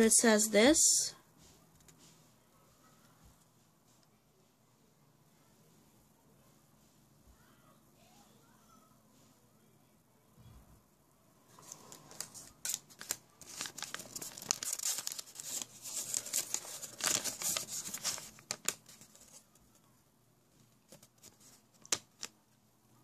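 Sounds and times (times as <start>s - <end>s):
paper crinkling and rustling: 11.5s - 19.8s, 20.6s - 22.4s
paper crackles: 11.5s - 19.9s, 20.6s - 22.4s.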